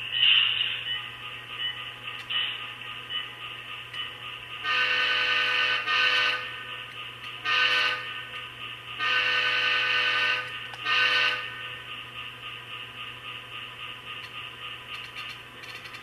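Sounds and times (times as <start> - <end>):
steady background hum: 0.0 - 16.0
multi-note air horn blasts: 4.6 - 6.6, 7.4 - 8.2, 9.0 - 11.6.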